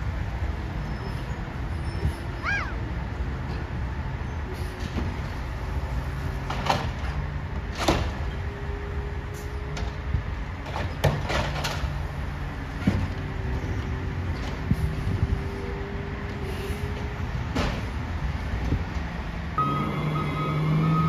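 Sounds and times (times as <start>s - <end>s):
garbage truck engine running: 19.6s - 21.0s
steady hydraulic whine: 19.6s - 21.0s.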